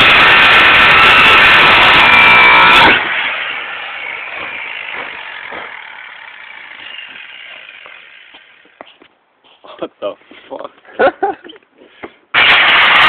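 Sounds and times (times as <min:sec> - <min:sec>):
angle grinder cutting steel: 0:00.0 - 0:08.7, 0:12.3 - 0:13.0.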